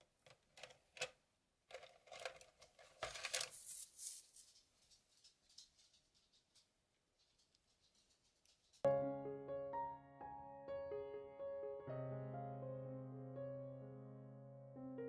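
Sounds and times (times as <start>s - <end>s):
paintbrush scrubbing paint: 3.4s - 4.8s.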